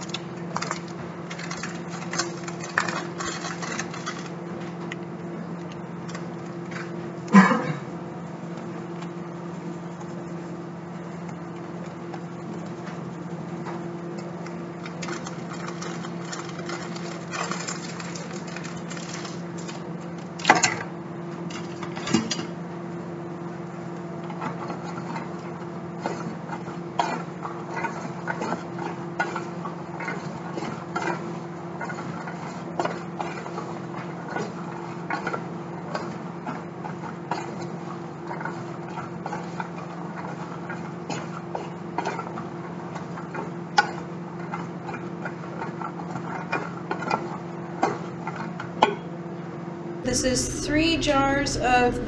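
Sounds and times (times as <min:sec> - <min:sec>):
low hum: 0:50.1 - 0:52.0.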